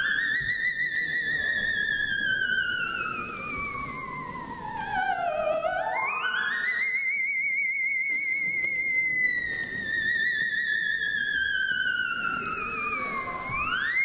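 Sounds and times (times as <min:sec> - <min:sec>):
theremin melody: 0:00.0 - 0:14.0.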